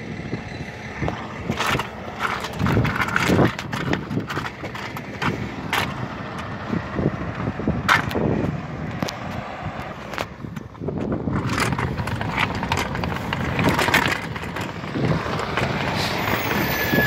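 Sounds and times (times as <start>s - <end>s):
diesel truck engine rumble: 0.0s - 17.0s.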